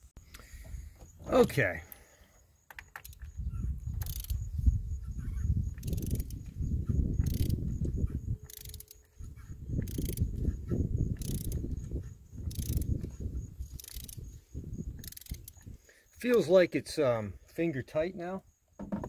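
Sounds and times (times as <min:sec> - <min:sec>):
ratchet wrench clicks: 0:02.7 - 0:03.3, 0:04.0 - 0:04.4, 0:05.8 - 0:06.4, 0:07.2 - 0:07.6, 0:08.4 - 0:09.1, 0:09.8 - 0:10.3, 0:11.2 - 0:11.6, 0:12.5 - 0:13.0, 0:13.7 - 0:14.3, 0:15.0 - 0:15.7.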